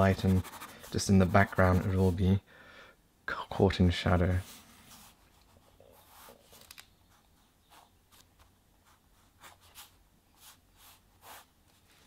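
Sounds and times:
pen scratching on paper: 0:00.0 - 0:02.0, 0:08.8 - 0:11.5.

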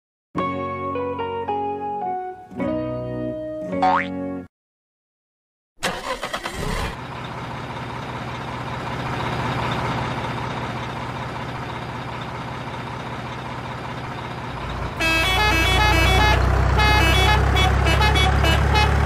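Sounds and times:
truck engine running: 0:05.8 - 0:19.0.

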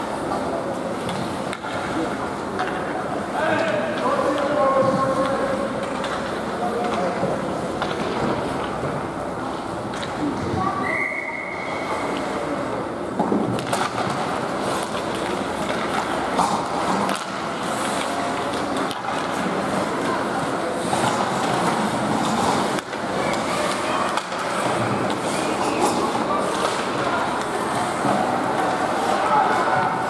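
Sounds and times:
sticks and puck clacking: 0:00.1 - 0:10.4, 0:13.2 - 0:30.0
skate blades scraping ice: 0:13.7 - 0:29.6.

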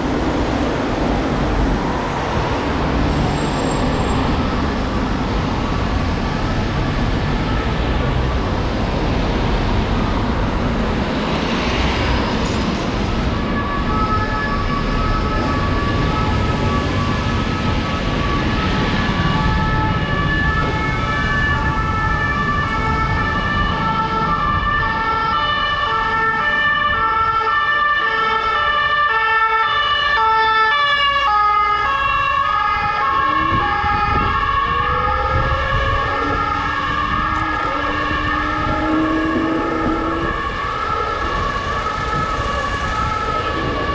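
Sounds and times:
traffic noise: 0:00.0 - 0:43.9
wind: 0:00.0 - 0:43.9
two-tone siren: 0:13.4 - 0:43.9.

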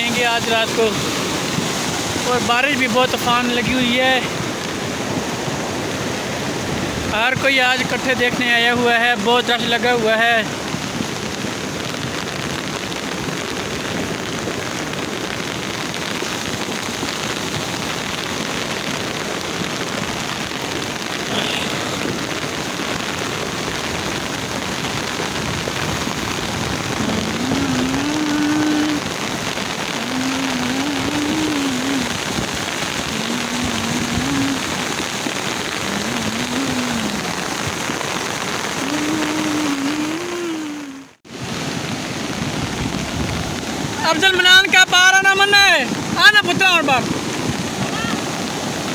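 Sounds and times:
heavy rain: 0:00.0 - 0:48.9
muddy flood torrent rushing: 0:00.0 - 0:48.9
person calling out: 0:21.3 - 0:21.9, 0:27.0 - 0:29.1, 0:30.0 - 0:32.2, 0:33.1 - 0:34.8, 0:35.8 - 0:37.4, 0:38.8 - 0:41.2, 0:47.9 - 0:48.2.

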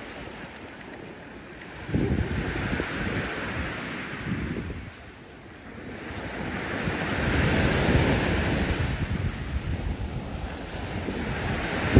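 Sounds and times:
waves washing onto sandy shore: 0:00.0 - 0:11.9
wind rumbling on microphone: 0:00.0 - 0:11.9.

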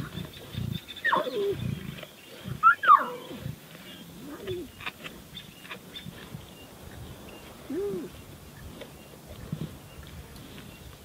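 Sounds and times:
lion cubs mewing: 0:00.0 - 0:06.2.

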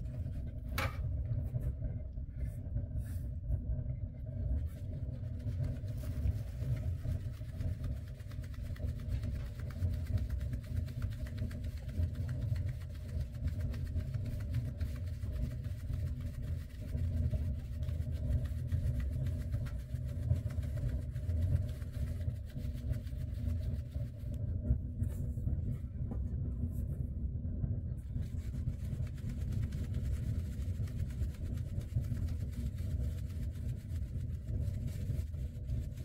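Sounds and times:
low engine-like rumble: 0:00.0 - 0:36.0.

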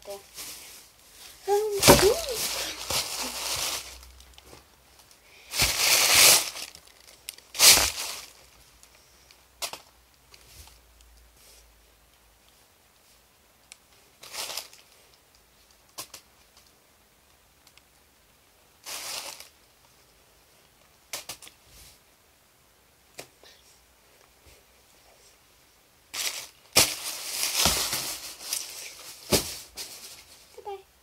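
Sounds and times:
tissue paper rustling: 0:00.0 - 0:04.6, 0:05.4 - 0:08.7, 0:14.2 - 0:15.0, 0:18.8 - 0:19.6, 0:26.2 - 0:30.8.

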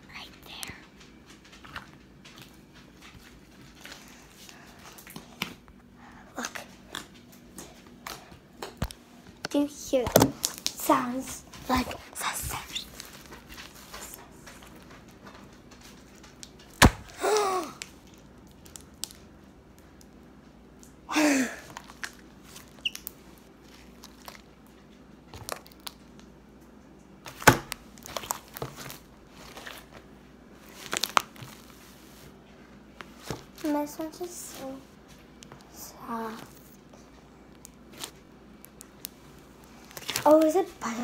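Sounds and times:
sticky clicks and crackles: 0:08.0 - 0:16.8, 0:17.8 - 0:20.2
slime squelching: 0:21.6 - 0:26.3, 0:33.0 - 0:41.0.

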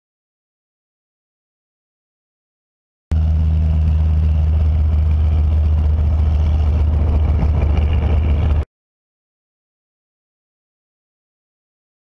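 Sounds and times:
propeller plane engine drone: 0:03.1 - 0:08.7.

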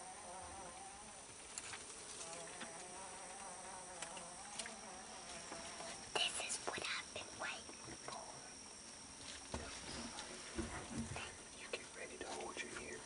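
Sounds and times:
faint high whine: 0:00.0 - 0:13.0
flying insect buzzing: 0:00.0 - 0:13.0.

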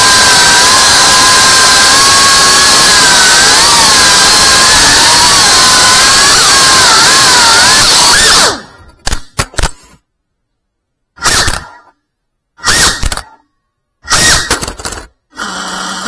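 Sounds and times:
quadcopter motors buzzing whine: 0:00.0 - 0:08.7.

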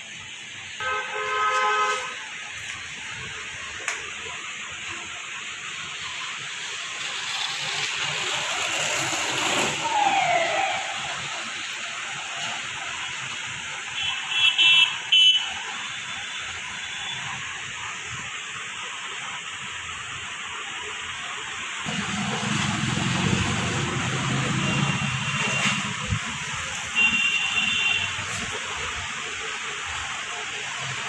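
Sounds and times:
road traffic noise: 0:00.0 - 0:31.0
falling squeal: 0:06.9 - 0:11.6.

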